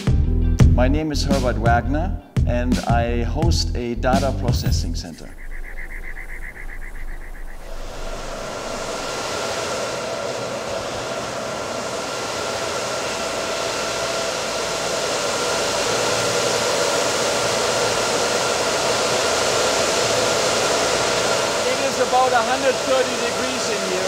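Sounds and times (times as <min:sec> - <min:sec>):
cooling fans rushing air: 0:03.0 - 0:24.0.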